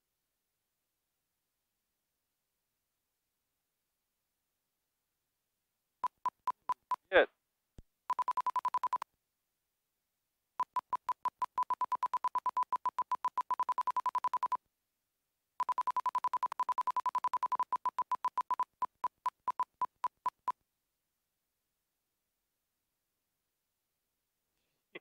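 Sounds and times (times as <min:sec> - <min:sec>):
rapid high warning beeps: 0:08.1 - 0:09.0, 0:10.6 - 0:14.6, 0:15.6 - 0:20.5.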